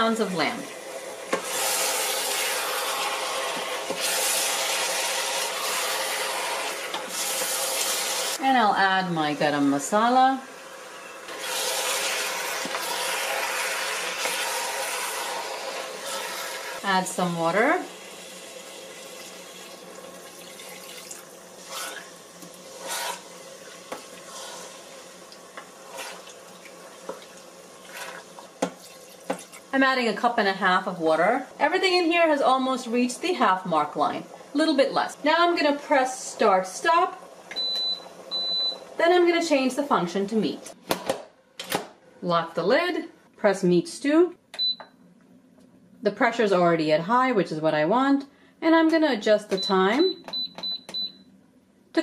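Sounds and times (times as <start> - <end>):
meat sizzling in a pot: 0.8 - 8.4, 10.5 - 29.7
wooden spoon stirring wet food: 21.0 - 29.7
wooden spoon stirring: 25.5 - 29.6.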